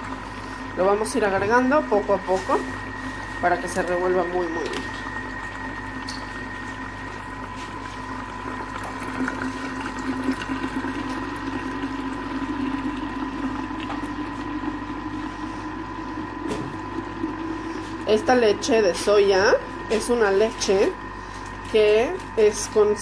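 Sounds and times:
mixer motor running: 0.0s - 23.0s
liquid churning: 2.6s - 18.7s
liquid pouring: 4.6s - 15.3s.

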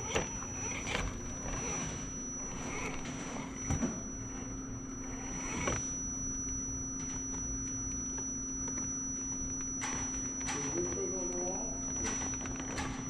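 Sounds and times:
electric motor and gears whining: 0.0s - 13.0s.

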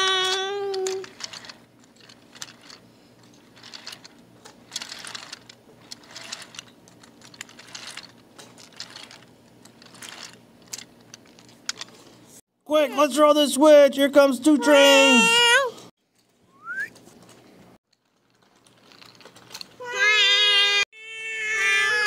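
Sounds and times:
toy train rolling on wooden track: 0.0s - 12.1s, 17.9s - 20.8s.

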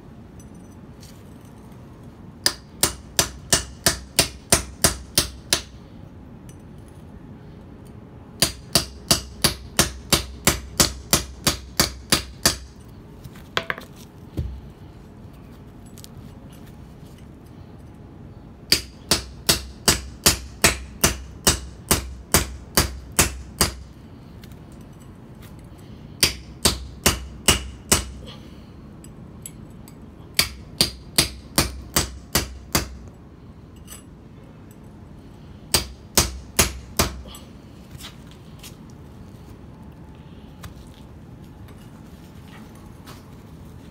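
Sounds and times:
hammer striking chisel on stone: 13.6s - 14.5s.

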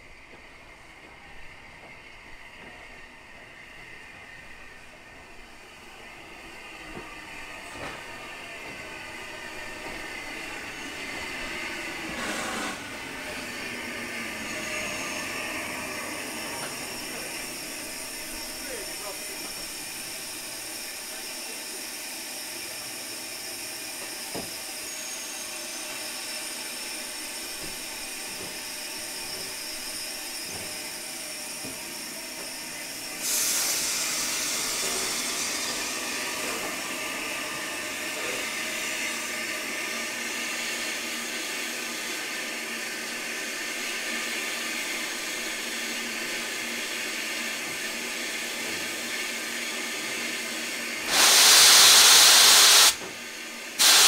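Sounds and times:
steam locomotive hissing: 0.1s - 54.0s
sharp hiss of escaping steam: 33.2s - 39.4s, 51.0s - 53.0s, 53.8s - 54.0s.

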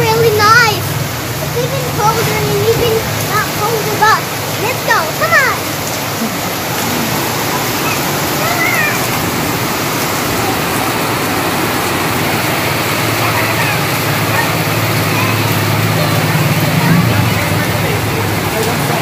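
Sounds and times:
heavy rain on concrete: 0.0s - 19.0s
child squealing: 7.5s - 9.2s.

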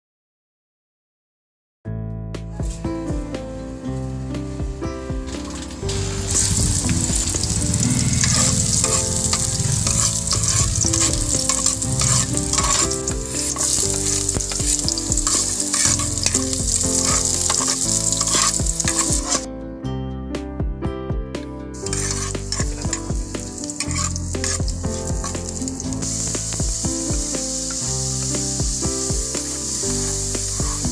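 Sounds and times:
onion sizzling in oil: 5.4s - 19.4s, 21.8s - 30.9s
spatula stirring: 5.4s - 19.4s, 21.8s - 28.6s, 29.2s - 30.9s.

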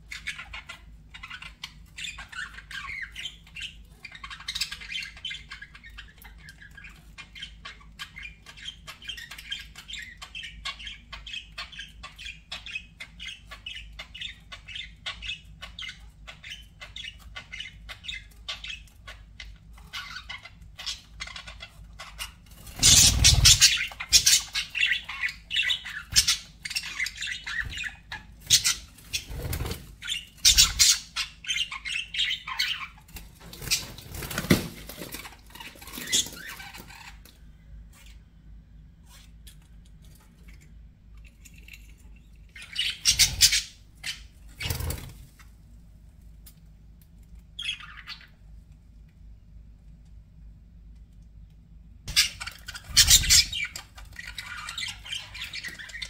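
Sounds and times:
budgerigars chirping: 0.0s - 37.3s, 42.5s - 45.2s, 47.6s - 48.4s, 52.1s - 56.0s
budgerigars squawking: 0.1s - 33.0s, 42.6s - 45.0s, 52.1s - 56.0s.

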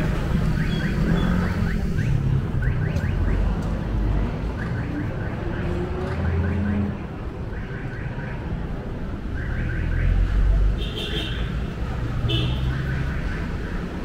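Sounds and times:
vehicle engines running: 0.0s - 10.8s.

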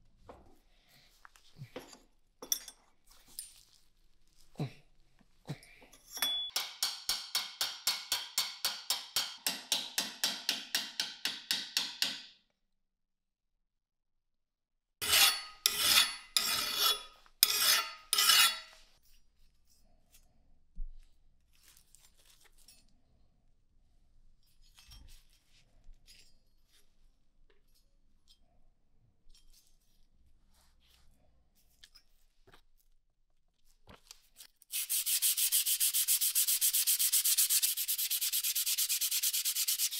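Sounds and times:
file rasping on steel: 15.0s - 18.8s, 34.7s - 39.9s.

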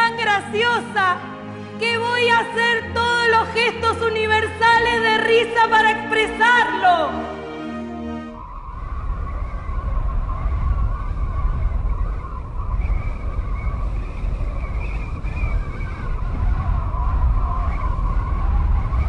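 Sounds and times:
heavy low rumble: 8.4s - 19.0s.

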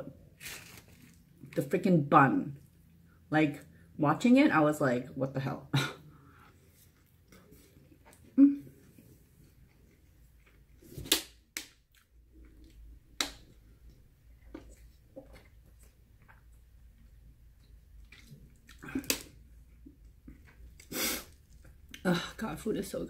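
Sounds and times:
plastic bottle crinkling: 0.4s - 1.6s.

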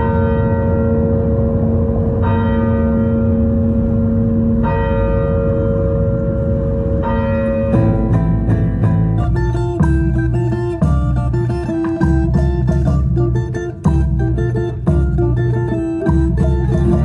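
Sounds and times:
steady hum: 0.0s - 17.0s
strummed guitar music: 7.5s - 17.0s.

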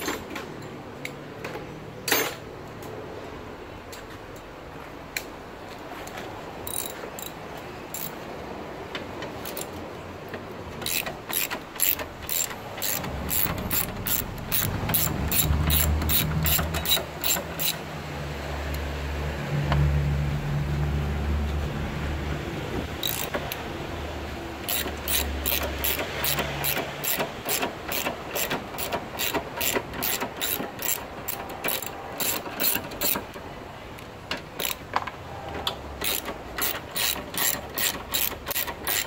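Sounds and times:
hand ratchet clicking: 6.6s - 8.2s, 9.4s - 9.8s, 10.8s - 17.8s, 23.0s - 23.6s, 24.6s - 33.4s, 34.6s - 34.8s, 36.0s - 39.0s.

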